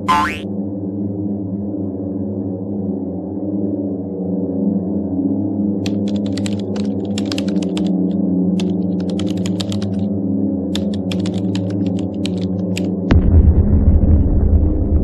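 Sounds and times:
keyboard keys clicking: 5.8s - 7.9s, 8.6s - 10.1s, 10.7s - 12.9s.

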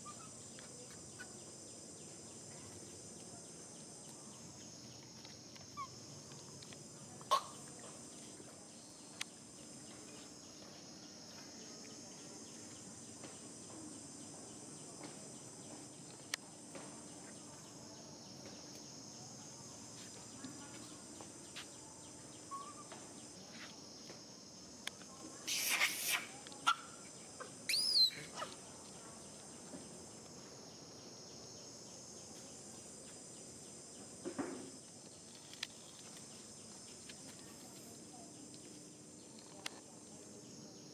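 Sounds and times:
high-pitched insect chorus buzzing: 0.0s - 40.9s
shrill gliding animal calls: 27.7s - 28.6s.

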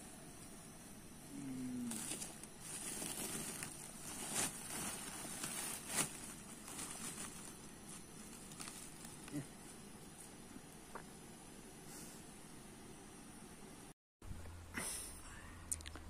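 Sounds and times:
plastic sack rustling and crinkling: 1.9s - 10.3s.

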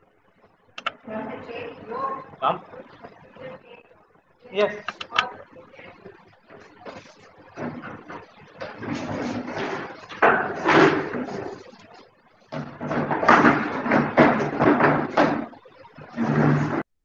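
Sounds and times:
indistinct talking over microphone: 0.8s - 9.3s.

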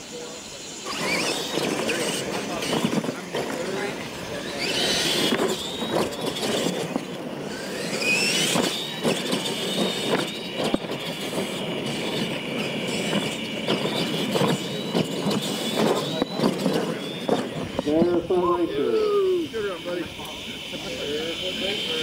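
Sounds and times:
electric motor whine: 0.0s - 22.0s
toy trucks clattering over dirt: 0.9s - 18.2s.

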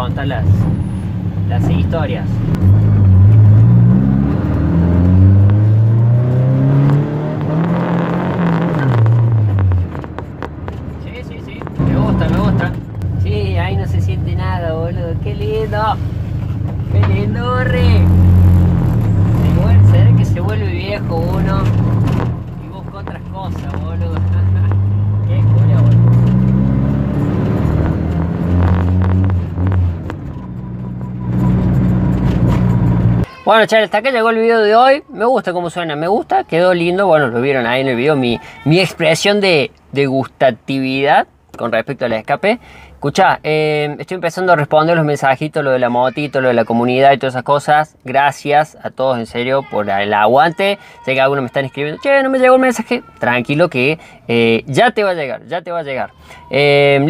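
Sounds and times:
car engine accelerating: 0.0s - 33.3s.

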